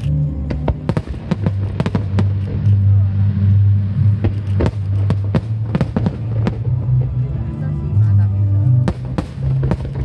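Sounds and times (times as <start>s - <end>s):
music with deep bass line: 0.0s - 10.0s
fireworks bursting with sharp bangs: 0.4s - 3.2s, 4.1s - 7.2s, 8.8s - 10.0s.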